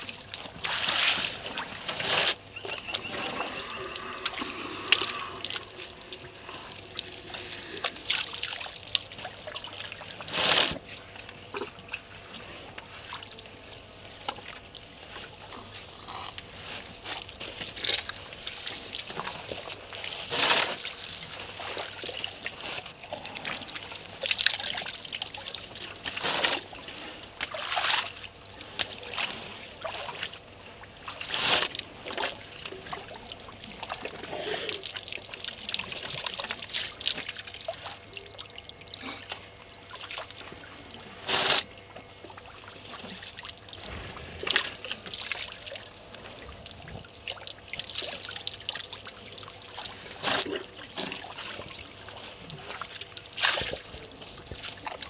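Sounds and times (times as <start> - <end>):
water splashing: 0.0 - 10.4, 32.0 - 55.0.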